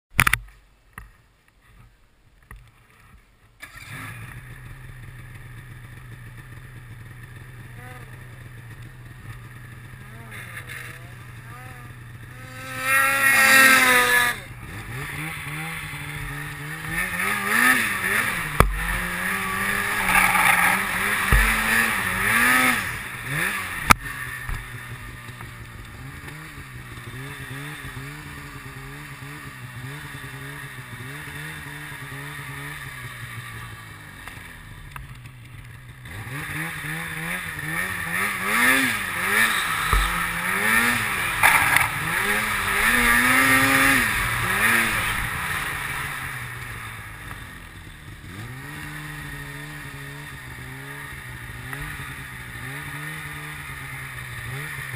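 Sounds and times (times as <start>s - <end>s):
snowmobile engine revving: 3.6s - 54.9s
sharp knocks: 21.2s - 21.9s.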